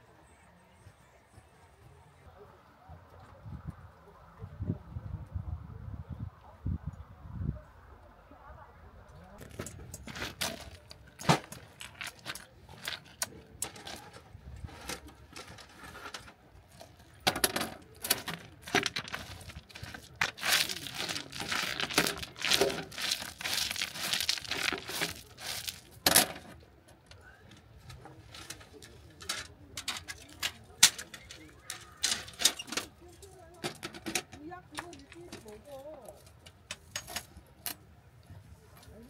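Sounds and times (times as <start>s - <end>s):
metal parts clacking: 9.4s - 26.6s, 27.6s - 37.8s
fabric bag rustling: 19.0s - 26.0s.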